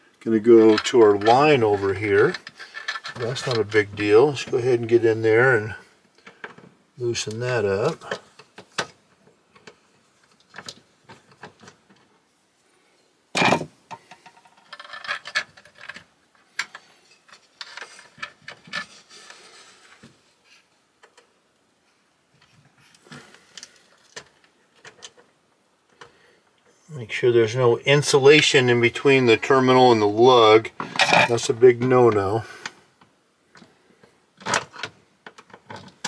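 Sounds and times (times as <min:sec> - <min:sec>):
rubbing and scraping: 0:00.3 - 0:05.8, 0:14.3 - 0:20.7.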